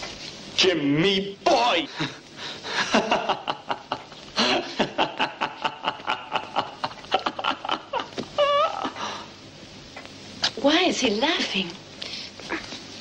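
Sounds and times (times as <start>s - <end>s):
man laughing: 2.7s - 9.0s.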